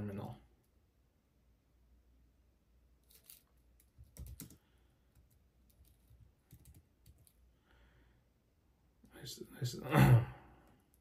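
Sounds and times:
faint computer keyboard typing: 3.1 - 7.4.

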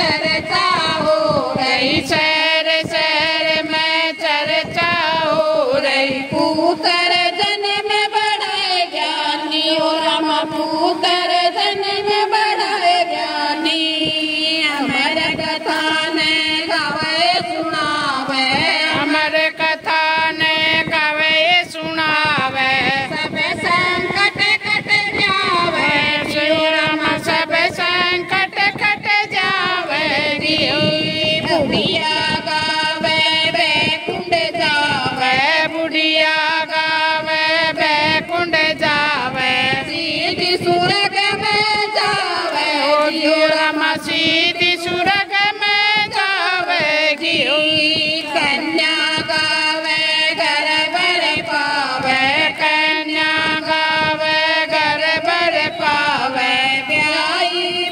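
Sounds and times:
lead voice on a microphone: 0.0 - 57.9
women singing in unison: 0.0 - 57.9
hand claps keeping time: 18.5 - 57.9.

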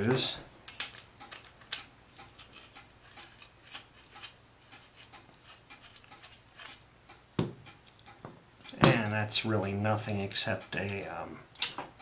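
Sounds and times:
pliers clicking and scraping: 0.7 - 6.9, 11.6 - 11.8.

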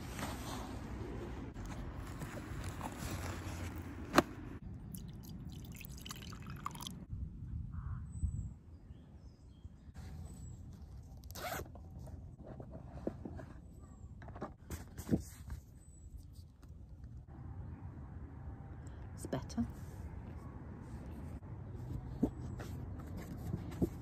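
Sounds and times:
zipper: 11.3 - 11.7.

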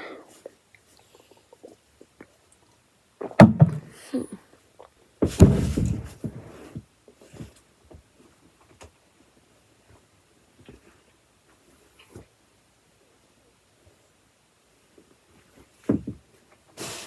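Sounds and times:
bumping and rustling: 5.2 - 7.6, 15.7 - 16.3.

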